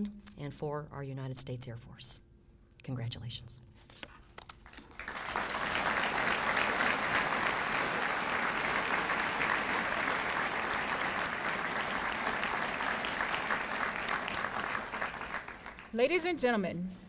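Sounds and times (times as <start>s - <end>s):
audience applauding: 4.6s - 16.0s.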